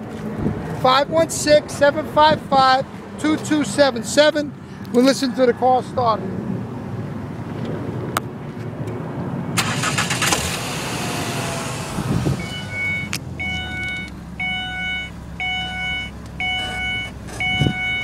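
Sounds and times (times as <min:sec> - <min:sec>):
car engine starting and idling: 0:09.5 - 0:18.0
dashboard warning chime: 0:12.4 - 0:18.0.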